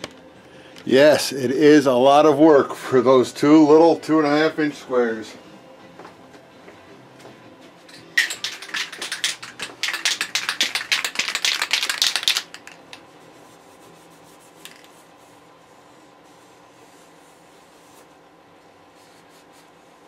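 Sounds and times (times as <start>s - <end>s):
spray can ball rattling: 8.1s - 13.0s, 14.6s - 15.0s.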